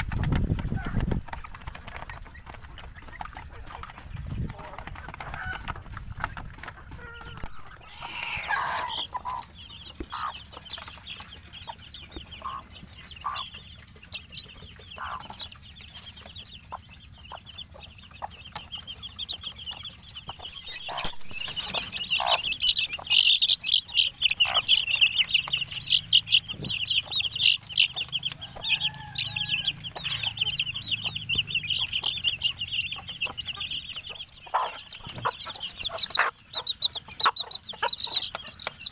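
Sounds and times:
chicks peeping: 0:00.0 - 0:38.9
hen clucking: 0:00.0 - 0:38.9
short bird calls: 0:07.0 - 0:10.4.

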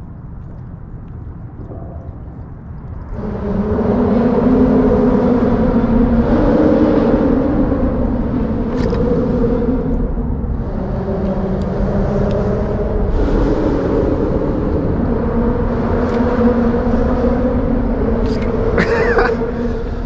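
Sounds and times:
road traffic rumble overhead: 0:00.0 - 0:20.0
faint clicks: 0:11.2 - 0:12.5.

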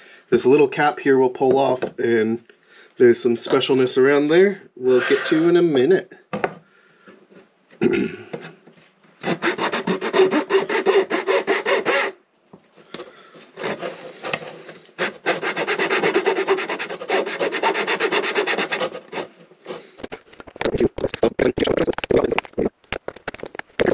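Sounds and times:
saw cutting thin wood: 0:04.9 - 0:05.5, 0:09.2 - 0:12.2, 0:13.5 - 0:20.0.

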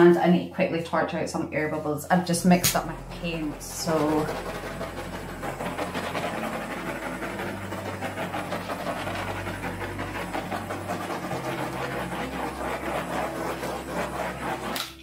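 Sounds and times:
butane torch hissing: 0:02.3 - 0:15.0.

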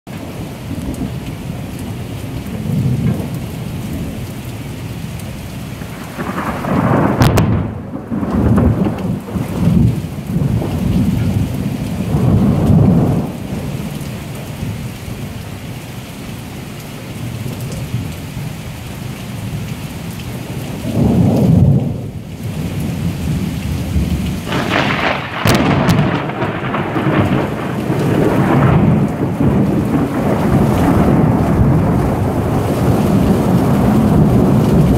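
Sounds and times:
steady rain falling: 0:00.1 - 0:34.9
thunder rumbling: 0:00.2 - 0:05.0, 0:05.8 - 0:15.4, 0:20.3 - 0:34.9
sharp thunder cracks: 0:05.9 - 0:13.7, 0:24.0 - 0:34.9.

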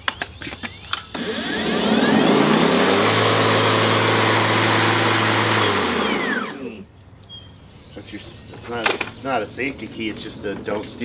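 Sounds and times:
electric lawn mower motor whirring: 0:01.1 - 0:06.9.

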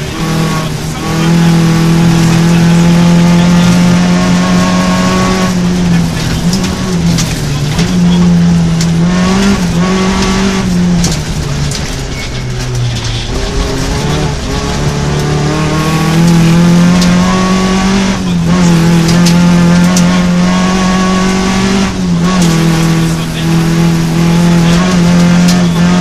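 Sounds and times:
rally car engine revving: 0:00.0 - 0:26.0.

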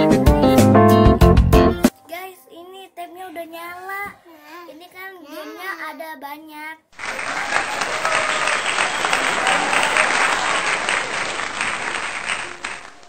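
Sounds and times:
crowd applause: 0:07.0 - 0:13.0.

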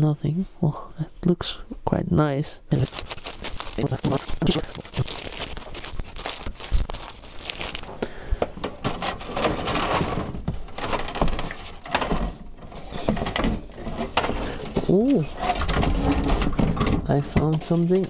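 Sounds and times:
plastic wrapping crinkling: 0:02.7 - 0:08.2.

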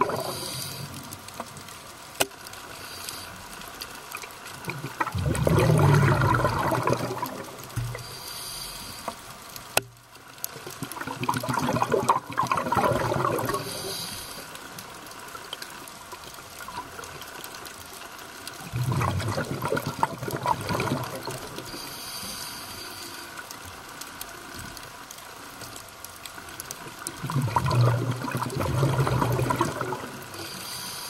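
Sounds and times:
exhaust bubbles underwater: 0:00.0 - 0:01.1, 0:04.6 - 0:08.2, 0:10.6 - 0:14.1, 0:18.5 - 0:21.8, 0:26.9 - 0:30.6
hissing inhalations: 0:00.1 - 0:01.1, 0:07.8 - 0:09.3, 0:13.5 - 0:14.6, 0:21.7 - 0:23.4, 0:30.4 - 0:31.0.

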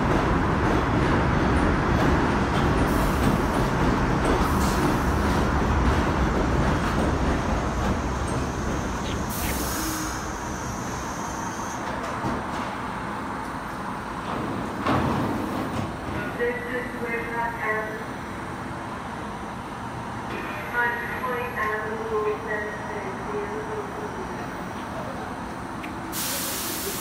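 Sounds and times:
subway train rumbling: 0:00.0 - 0:27.0
air brakes hissing: 0:09.3 - 0:11.8, 0:26.1 - 0:27.0.

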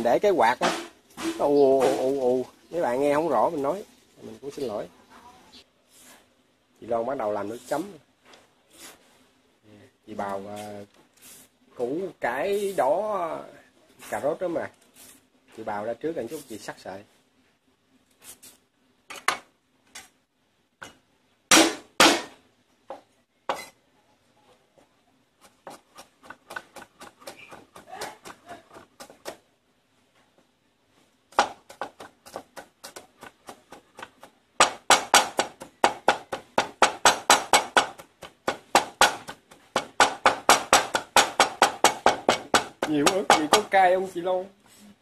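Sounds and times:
cleaver chopping on wooden board: 0:21.5 - 0:22.3, 0:25.6 - 0:29.4, 0:31.3 - 0:43.8.

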